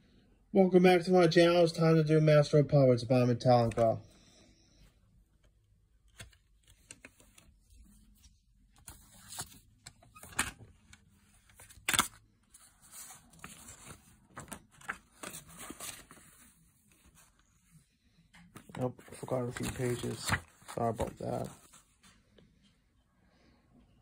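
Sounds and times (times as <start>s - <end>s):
paper rustling: 6.1s - 17.8s, 18.5s - 22.2s.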